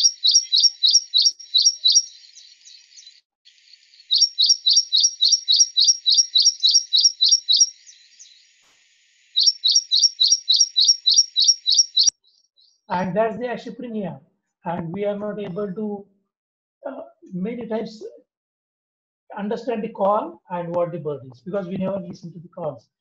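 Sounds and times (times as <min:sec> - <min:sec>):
bird singing high notes: 0:00.0 - 0:03.2, 0:04.0 - 0:08.5, 0:09.3 - 0:12.8.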